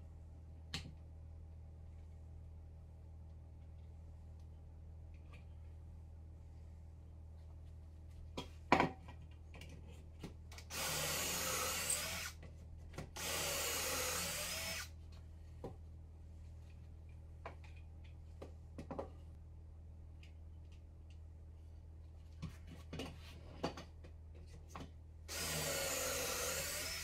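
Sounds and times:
cordless drill boring into wood: 10.7s - 12.4s, 13.2s - 14.9s, 25.3s - 27.0s.

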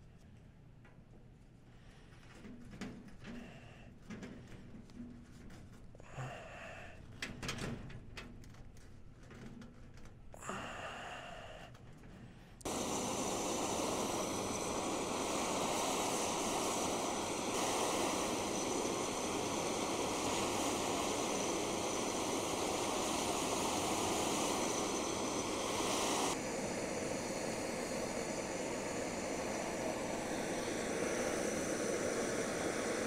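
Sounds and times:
propane torch hissing: 12.6s - 33.0s.

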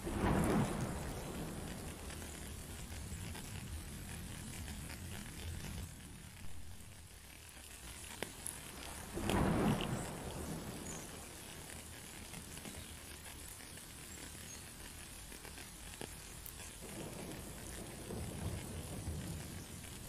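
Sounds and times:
thunder rumbling: 0.0s - 7.0s, 8.3s - 13.6s, 16.7s - 20.0s
rain hissing: 0.0s - 20.0s.

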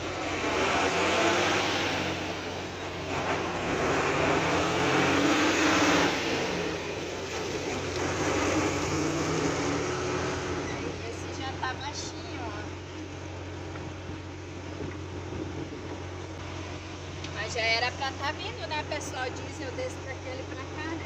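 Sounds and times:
heavy vehicles passing: 0.0s - 13.4s
steady low engine hum: 0.0s - 21.0s.

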